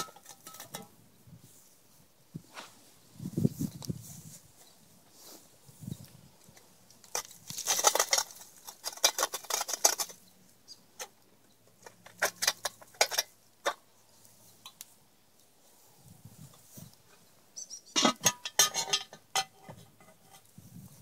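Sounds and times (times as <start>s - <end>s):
hot coals rattling onto fire: 0.0s - 1.0s, 6.0s - 14.0s, 18.0s - 20.6s.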